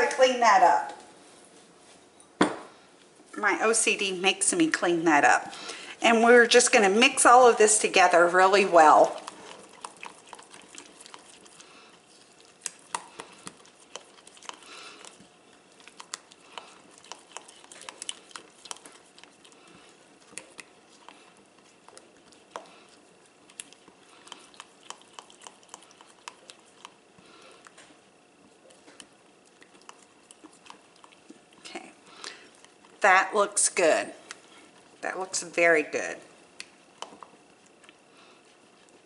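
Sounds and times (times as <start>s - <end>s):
spatula stirring thick sauce: 6.9s - 27.0s.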